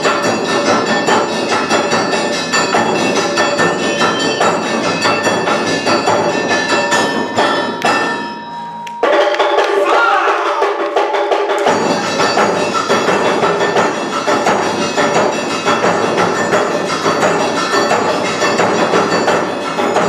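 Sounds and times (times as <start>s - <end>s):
ringing metal gong: 0.0s - 9.9s
drums beating: 0.0s - 20.0s.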